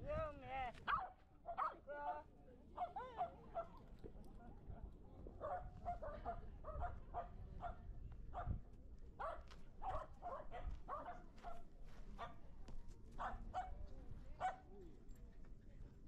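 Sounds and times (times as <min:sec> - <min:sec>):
dog barking: 0:00.9 - 0:01.8, 0:05.4 - 0:07.8, 0:09.2 - 0:12.4, 0:13.2 - 0:13.8, 0:14.4 - 0:14.7.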